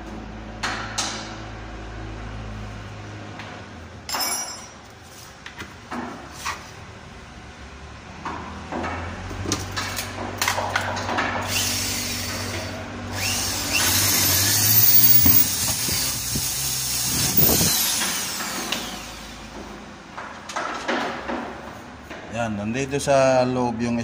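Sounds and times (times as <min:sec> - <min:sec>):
electric drill boring through wood: 0:11.4 - 0:19.6.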